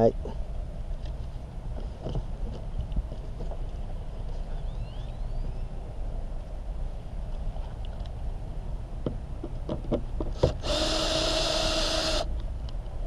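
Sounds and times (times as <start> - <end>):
cordless drill whining: 10.5 - 12.3.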